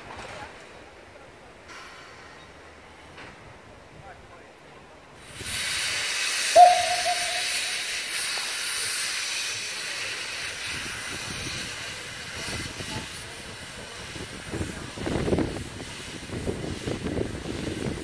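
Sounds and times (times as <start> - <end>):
steam locomotive hissing steam: 1.7 - 3.1, 5.1 - 18.0
steam whistle toot: 6.5 - 8.3.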